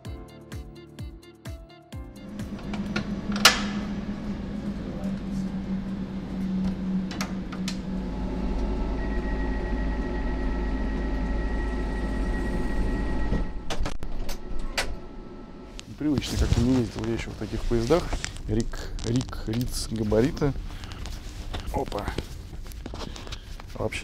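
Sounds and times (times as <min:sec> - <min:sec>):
door closing rumble and whine: 0:02.2 - 0:16.2
steady hum: 0:02.2 - 0:24.0.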